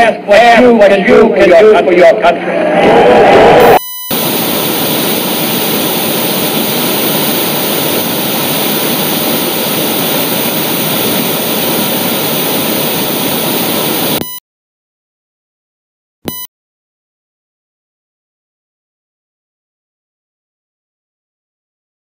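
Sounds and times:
white noise hiss: 4.1 - 14.2.

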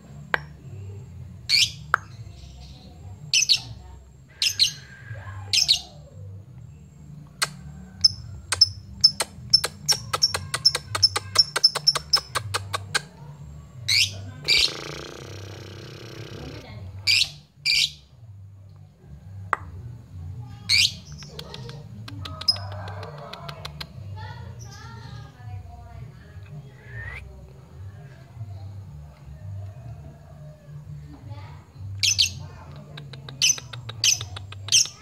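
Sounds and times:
lovebird chirping and shrieking: 4.4 - 6.0.

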